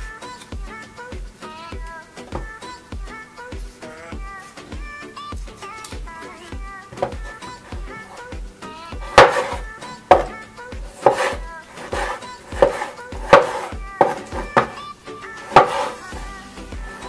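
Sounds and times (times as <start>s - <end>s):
background music: 0.0s - 17.0s
knife cutting on wooden board: 7.0s - 8.2s, 9.0s - 14.8s, 15.4s - 16.2s.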